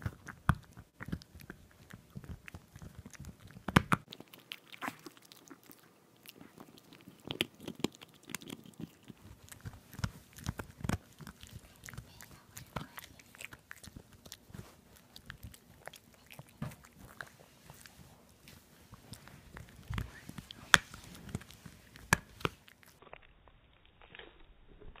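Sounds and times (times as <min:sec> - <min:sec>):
dog gnawing on bone: 0:00.0 - 0:25.0.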